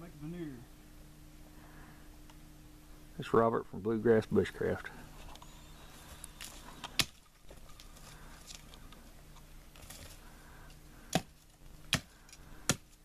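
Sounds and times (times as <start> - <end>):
blade chopping into wood: 6.9 - 7.2, 11.1 - 13.0.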